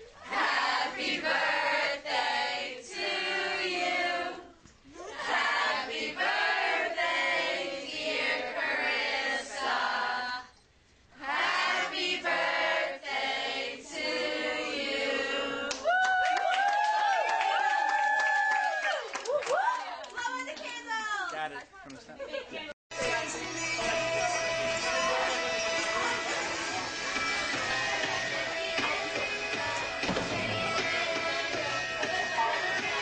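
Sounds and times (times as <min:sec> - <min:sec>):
group of voices singing: 0:00.2 - 0:04.6, 0:05.2 - 0:10.6, 0:11.2 - 0:15.8, 0:23.0 - 0:33.0.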